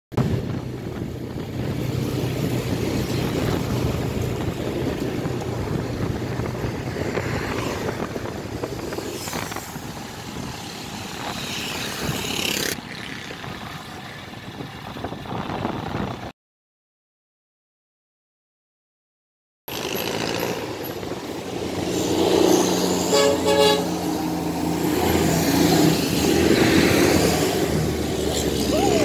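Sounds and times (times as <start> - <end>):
wind rushing: 0.2 - 12.8.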